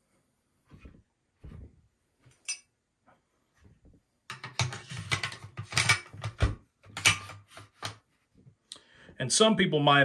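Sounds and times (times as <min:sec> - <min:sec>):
rifle parts clicking and clattering: 0:04.3 - 0:08.0.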